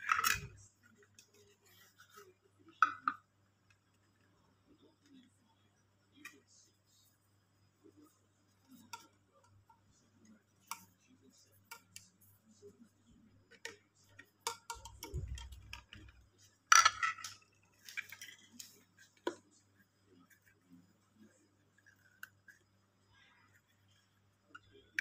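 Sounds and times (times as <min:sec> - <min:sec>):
plastic parts clicking and tapping: 0:00.0 - 0:02.1, 0:02.7 - 0:03.9, 0:13.5 - 0:19.5.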